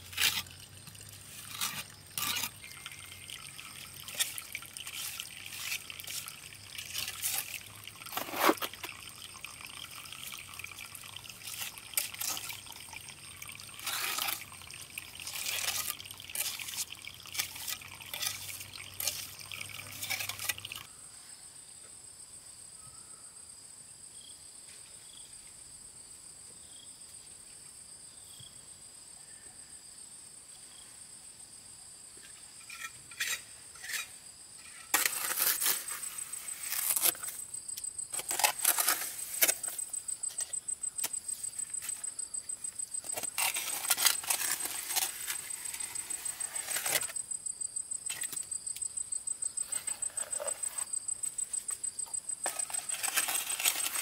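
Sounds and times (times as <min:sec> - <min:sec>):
water trickling and dripping: 0:00.1 - 0:20.9.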